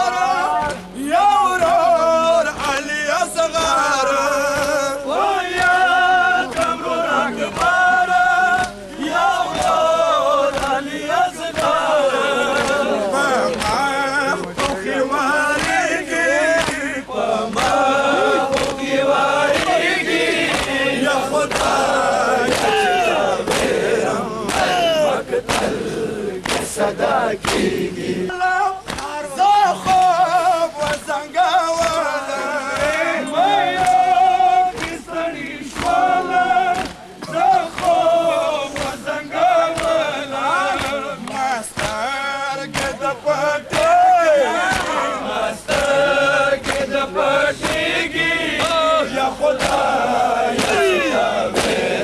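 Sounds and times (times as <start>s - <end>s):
crowd of men chanting a lament: 0.0s - 52.0s
chest-beating slaps: 7.5s - 7.8s, 8.6s - 8.8s, 10.5s - 10.8s, 12.5s - 14.9s, 15.6s - 15.8s, 16.6s - 16.9s, 18.4s - 18.9s, 19.5s - 28.0s, 28.8s - 29.1s, 34.7s - 36.1s, 36.7s - 38.1s, 38.7s - 40.1s, 40.8s - 42.0s, 42.6s - 43.0s, 45.7s - 46.0s, 47.6s - 49.0s, 49.6s - 51.9s.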